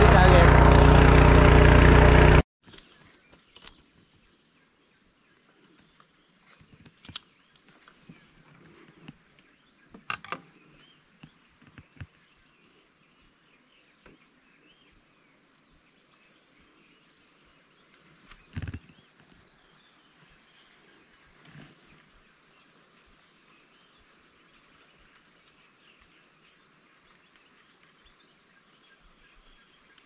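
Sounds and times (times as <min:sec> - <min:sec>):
small clicks and knocks: 0:10.0 - 0:10.5.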